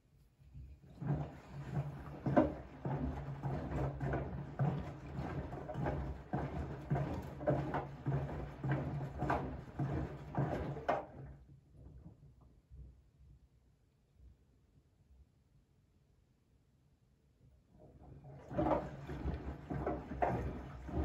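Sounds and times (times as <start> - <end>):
water sloshing in washing machine: 0.7 - 12.1, 17.7 - 21.0
washing machine motor hum: 0.8 - 11.3, 17.8 - 21.0.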